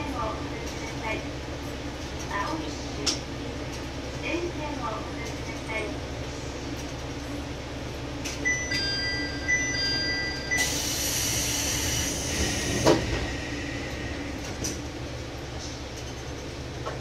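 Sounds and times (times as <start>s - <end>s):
diesel railcar idling: 0.0s - 17.0s
chime of high tones: 8.5s - 10.6s.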